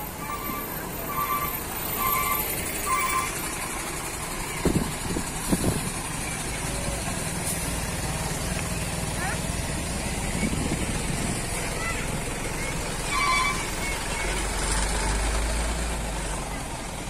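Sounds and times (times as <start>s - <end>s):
truck driving past: 0.0s - 17.0s
truck clunks: 1.2s - 16.4s.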